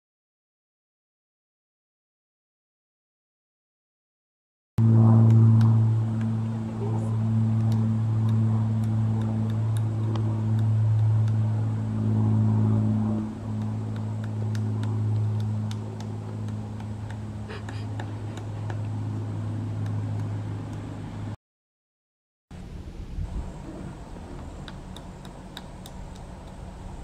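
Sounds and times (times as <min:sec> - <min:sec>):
low motor hum: 0:04.8 - 0:21.4, 0:22.5 - 0:27.0
woodpecker pecking wood: 0:05.2 - 0:12.1, 0:12.7 - 0:21.0, 0:24.0 - 0:27.0.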